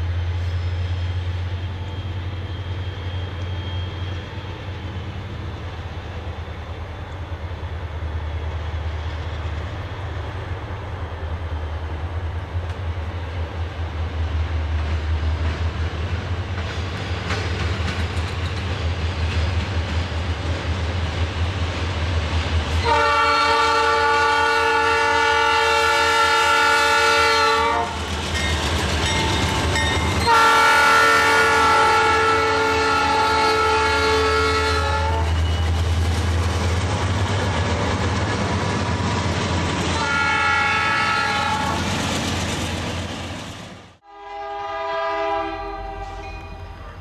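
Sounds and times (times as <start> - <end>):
locomotive engine rumble: 0.0 - 44.0
locomotive air horn chord: 22.8 - 28.0, 30.1 - 35.4, 40.0 - 41.8, 44.0 - 47.0.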